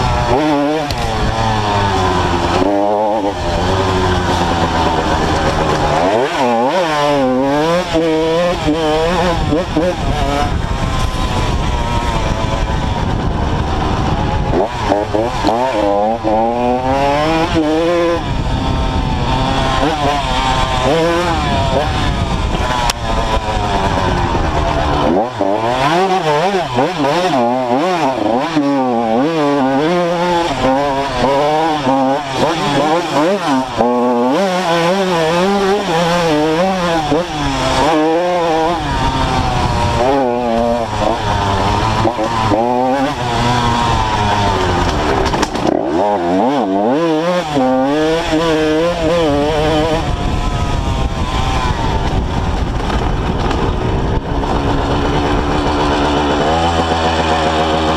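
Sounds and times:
dirt bike engine revving: 0.0 - 57.9
wind rush: 7.2 - 28.2, 35.4 - 45.8, 47.9 - 57.9.

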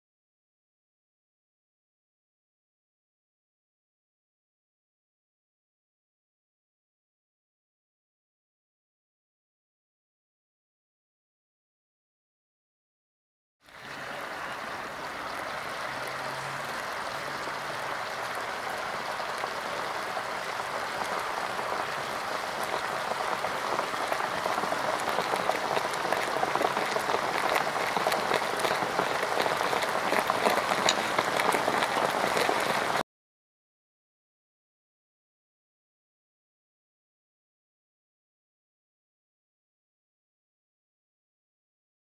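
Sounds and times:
bubbling fizzing hiss: 13.7 - 33.0.

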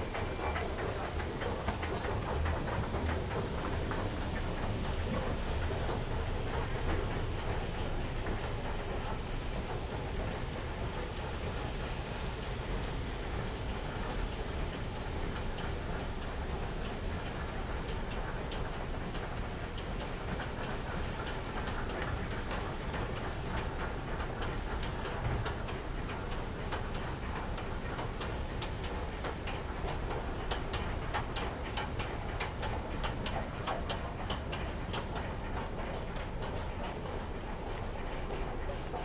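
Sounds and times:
footsteps on stone floor: 0.0 - 4.6, 34.5 - 36.4
escalator steps ticking: 0.0 - 39.0.

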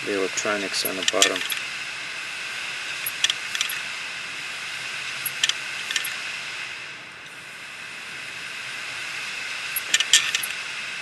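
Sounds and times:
hard drive platters spinning hiss: 0.0 - 11.0
hard drive head clicking: 3.0 - 3.8, 5.2 - 6.2, 9.8 - 10.6.

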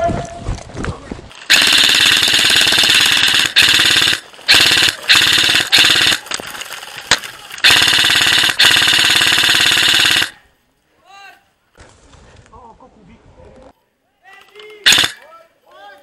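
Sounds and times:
airsoft rifle full-auto bursts: 1.5 - 6.4, 7.6 - 10.4, 14.8 - 15.2.

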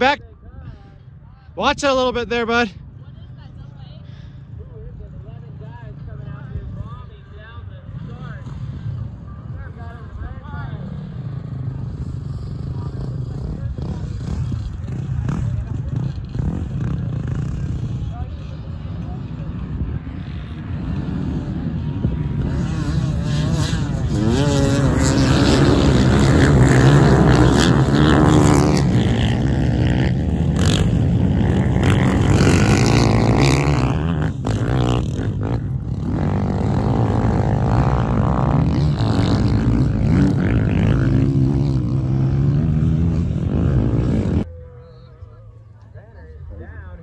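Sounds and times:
dirt bike engines revving: 0.0 - 47.0
dirt bike passing close: 7.8 - 44.6.

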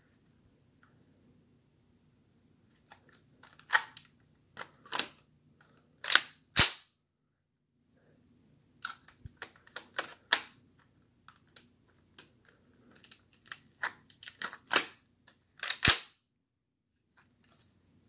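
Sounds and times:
plastic bricks clicking and clacking: 11.3 - 16.1.

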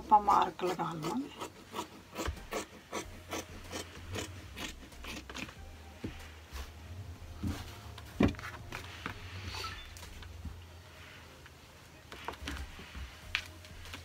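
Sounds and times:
scissors snipping fabric: 0.6 - 5.6
low steady hum: 2.4 - 14.0.

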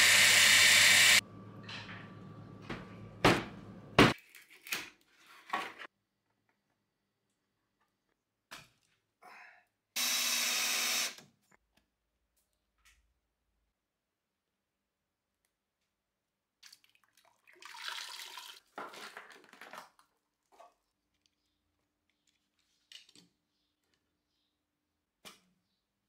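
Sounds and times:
small power tool whirring: 0.0 - 1.2, 10.0 - 11.2
knocks and thuds of handling containers: 2.6 - 4.2.

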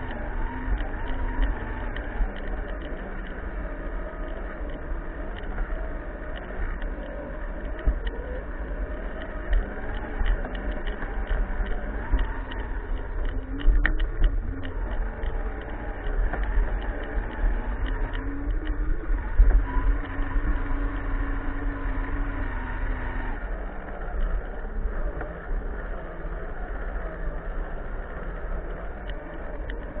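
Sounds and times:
chassis rumbling and rattling: 0.0 - 30.0
electric motor and gearbox whine: 0.0 - 30.0.

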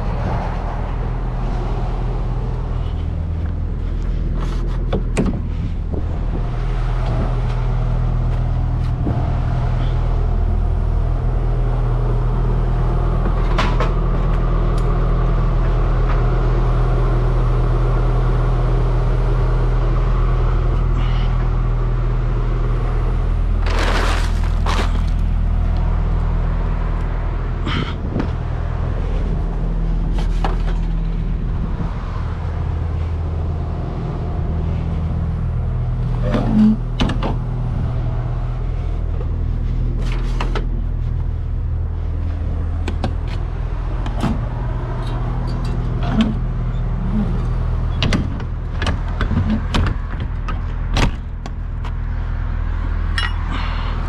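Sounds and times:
diesel engine idling: 0.0 - 54.0
bag rustling and bumping: 23.6 - 25.3.

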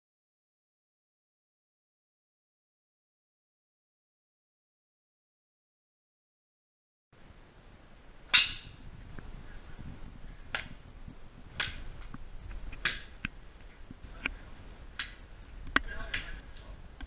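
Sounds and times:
golf clubs striking balls: 8.2 - 17.0.

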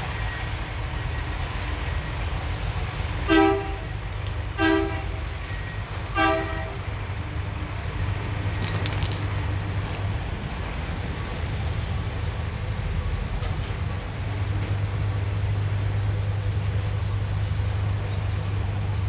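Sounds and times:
truck horn blasts: 3.2 - 5.4, 6.0 - 6.9.

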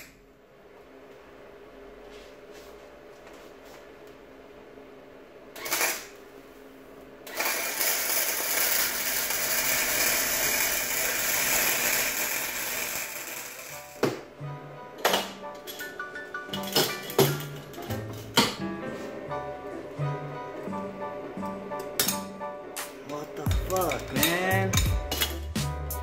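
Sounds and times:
welder arc crackling: 5.6 - 6.2, 7.2 - 14.1, 22.8 - 25.3.

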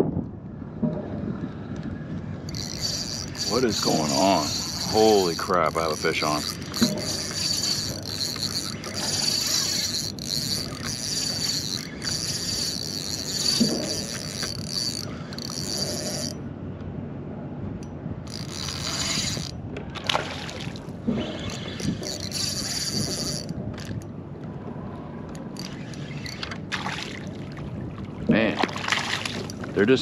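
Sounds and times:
fishing reel whirring: 2.4 - 16.4, 18.2 - 19.6, 20.3 - 24.1, 25.3 - 27.4.

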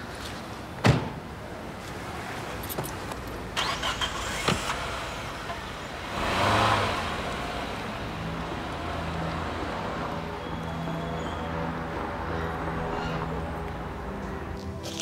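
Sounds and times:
car passing by: 3.6 - 13.4.

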